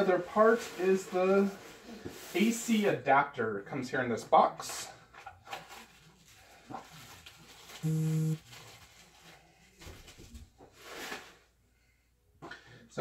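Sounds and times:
short electronic buzz: 0:07.8 - 0:08.4.

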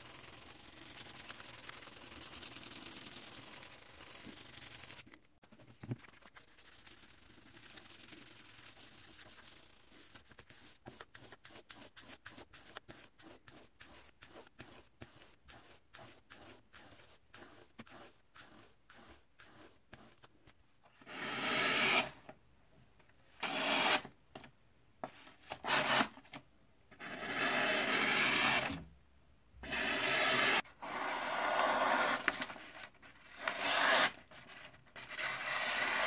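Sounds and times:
file stroking along blade: 0:33.4 - 0:34.2.

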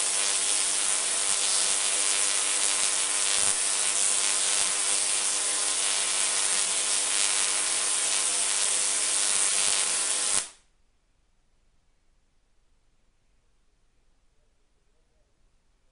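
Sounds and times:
tesla coil sparks buzzing: 0:00.0 - 0:10.6.

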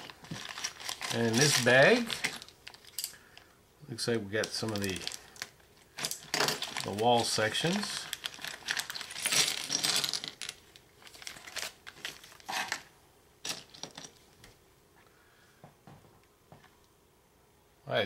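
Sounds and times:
plastic bag crinkling: 0:00.0 - 0:03.4, 0:04.4 - 0:14.2
plastic pieces clicking and clattering: 0:04.4 - 0:12.8, 0:13.4 - 0:14.2.

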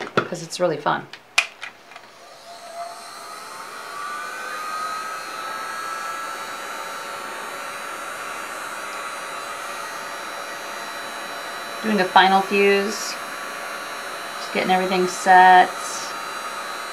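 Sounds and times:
heat gun fan whirring: 0:00.0 - 0:16.9.

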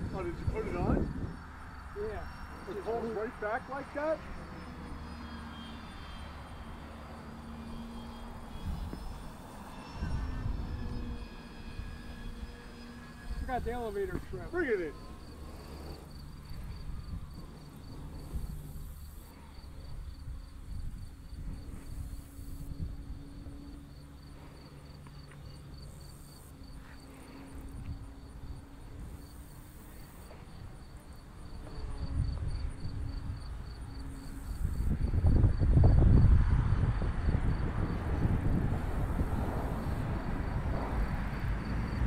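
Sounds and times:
wind rumble on microphone: 0:00.0 - 0:02.8, 0:06.3 - 0:24.4, 0:25.5 - 0:42.0
crickets trilling: 0:00.0 - 0:42.0
distant model airplane drone: 0:00.0 - 0:42.0.

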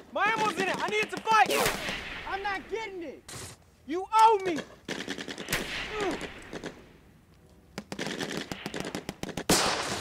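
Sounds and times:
rifle and machine gun fire: 0:07.9 - 0:10.0.

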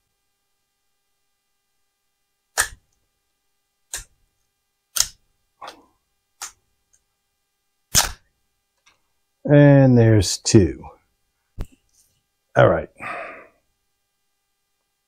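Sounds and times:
plastic supports snapping: 0:02.6 - 0:02.8, 0:07.9 - 0:08.2.

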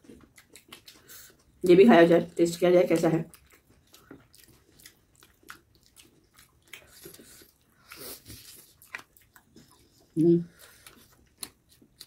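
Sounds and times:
faint chewing: 0:00.0 - 0:12.0.

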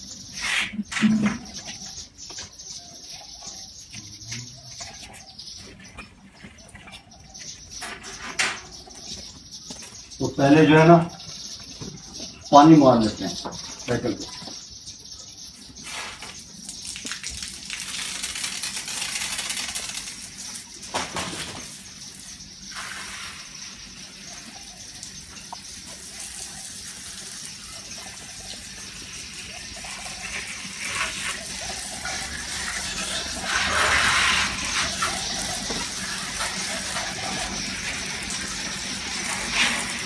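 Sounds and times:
hose spraying water: 0:15.8 - 0:40.0
water splashing on wet paving: 0:16.2 - 0:21.7.

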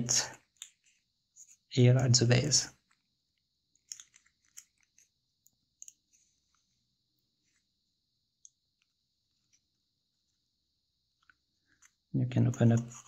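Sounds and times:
paper crinkling: 0:03.8 - 0:05.2.

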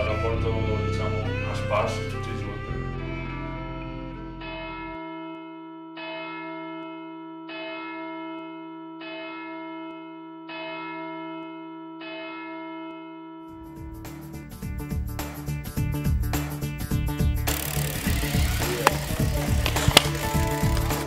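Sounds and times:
music: 0:00.0 - 0:05.0, 0:13.5 - 0:21.0.

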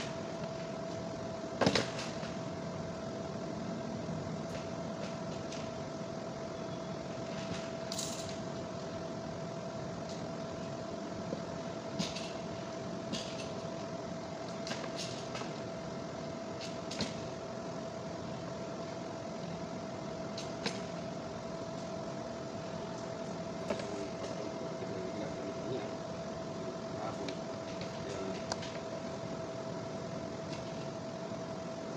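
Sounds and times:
steady hum with high tone: 0:00.0 - 0:31.9.

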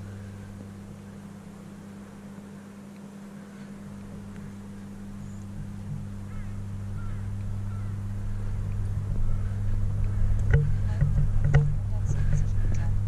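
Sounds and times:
steady low hum: 0:00.0 - 0:13.0
faint bird-like chirps: 0:03.4 - 0:09.8.

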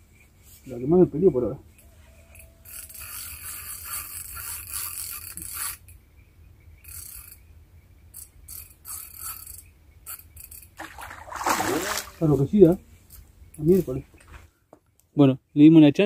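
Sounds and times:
fishing reel ratcheting: 0:02.3 - 0:06.0, 0:06.8 - 0:07.4, 0:08.1 - 0:10.8.

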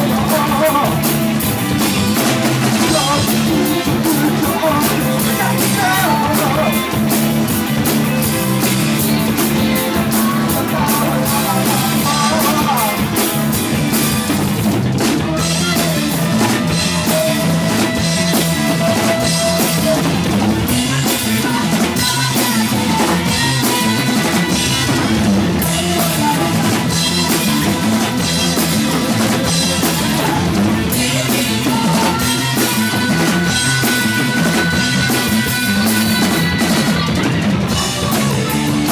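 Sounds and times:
drum kit: 0:00.0 - 0:38.9
electric guitar: 0:00.0 - 0:38.9
woman singing: 0:09.0 - 0:13.0, 0:21.0 - 0:28.1, 0:29.6 - 0:38.9.

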